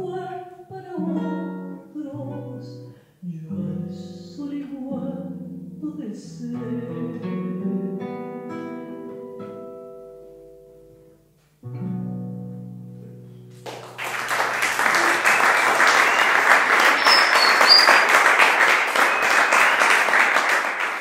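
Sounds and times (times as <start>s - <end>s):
audience applause: 13.6s - 21.0s.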